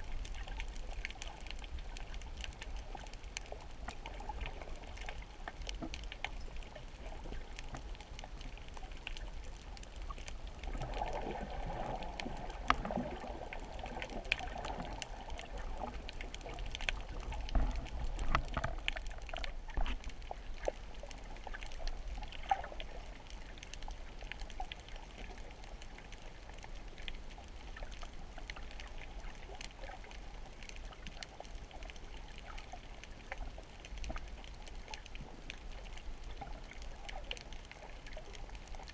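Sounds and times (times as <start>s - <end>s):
rush of water: 0.0s - 38.9s.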